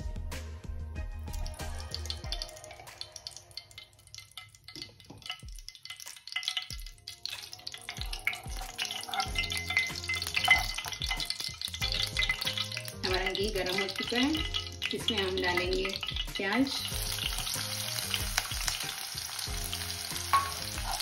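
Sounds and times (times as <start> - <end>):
ghee crackling in frying: 1.3 - 21.0
spoon scraping a pan: 4.4 - 17.5, 20.2 - 21.0.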